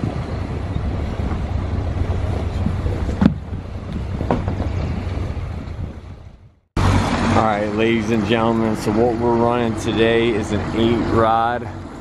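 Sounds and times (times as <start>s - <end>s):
outboard motor idling: 0.0s - 12.0s
wind buffeting microphone: 0.0s - 12.0s.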